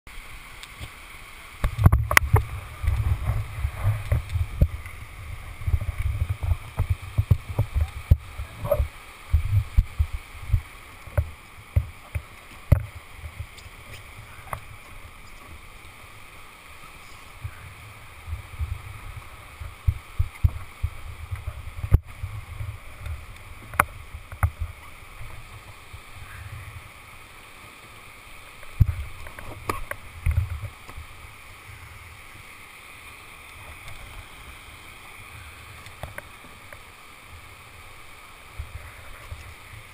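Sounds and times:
river water rushing: 0.1 - 39.9
sharp knocks and rustles: 5.6 - 15.5.

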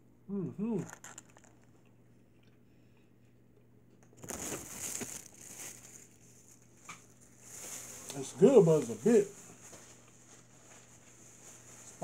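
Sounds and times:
faint room hum: 0.0 - 12.0
paper wrapper rustling: 4.1 - 12.0.

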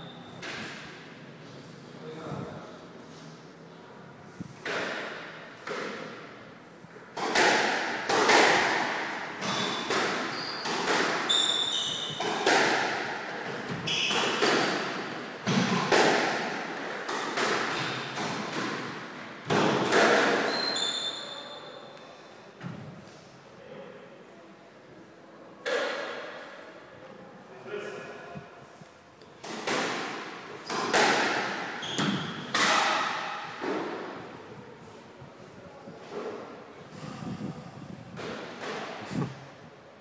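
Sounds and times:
squash ball hitting rackets and walls: 0.4 - 1.2, 4.5 - 21.3, 25.6 - 26.6, 29.3 - 34.7, 37.4 - 39.5
shoes squeaking on wooden floor: 9.4 - 12.2, 13.7 - 14.4, 20.4 - 21.8, 31.8 - 32.5.

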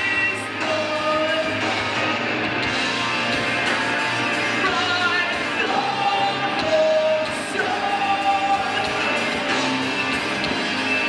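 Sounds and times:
drums: 0.0 - 11.0
electric guitars: 0.0 - 11.0
man singing long notes: 4.7 - 9.1.

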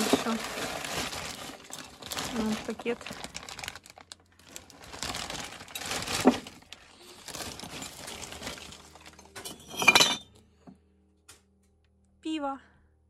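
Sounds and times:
plastic bag rustling: 0.0 - 10.2
glass bottles clinking: 7.6 - 10.4.

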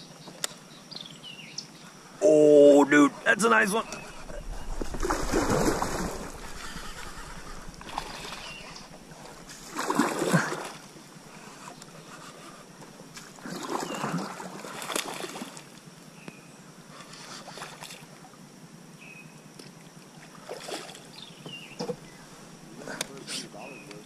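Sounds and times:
water lapping: 3.0 - 15.8
fish splashing in water: 3.9 - 11.0, 13.3 - 15.7.

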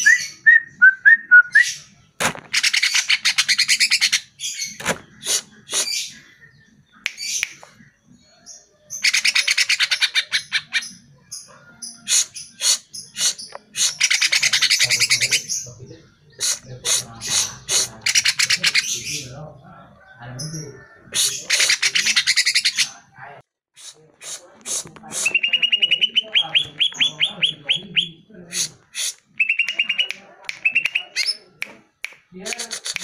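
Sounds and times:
bird whistling and trilling: 0.0 - 1.8, 29.4 - 31.4.

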